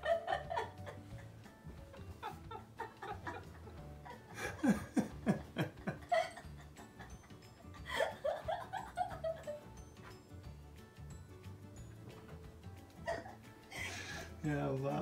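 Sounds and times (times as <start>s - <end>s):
person laughing: 0.0s - 9.6s.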